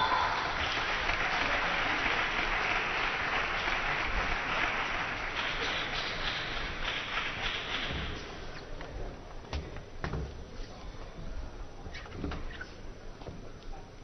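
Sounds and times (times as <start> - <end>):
spectators applauding: 0.0 - 8.8.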